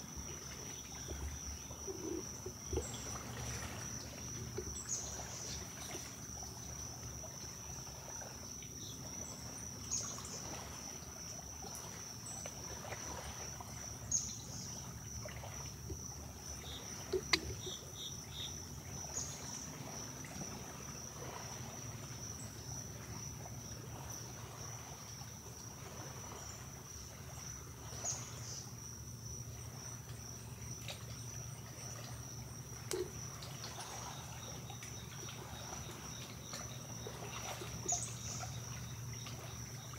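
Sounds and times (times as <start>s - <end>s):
deer splashing in water: 0.0s - 7.3s
high-pitched insect chorus: 0.0s - 39.9s.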